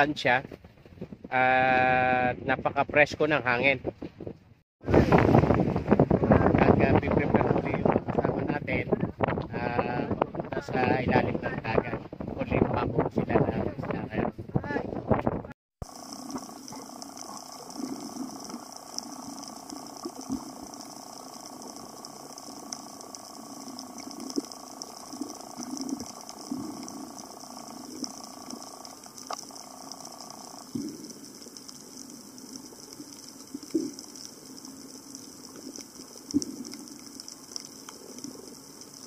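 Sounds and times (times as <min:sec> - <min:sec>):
bubbly gurgles: 0:15.8 - 0:39.0
underwater crackling and clicking: 0:15.8 - 0:39.0.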